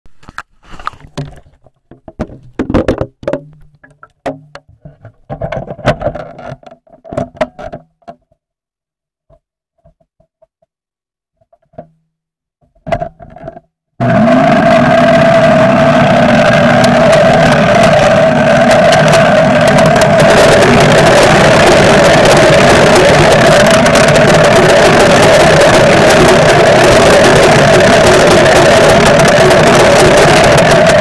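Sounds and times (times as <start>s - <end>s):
blender motor whining: 14.0s - 31.0s.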